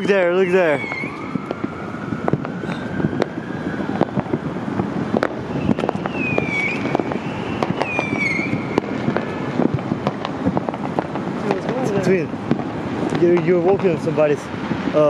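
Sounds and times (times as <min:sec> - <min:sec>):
siren wailing: 0:00.0 - 0:10.0
distant fireworks popping: 0:00.0 - 0:15.0
steady urban hum: 0:00.0 - 0:15.0
short falling whistles: 0:05.6 - 0:08.6.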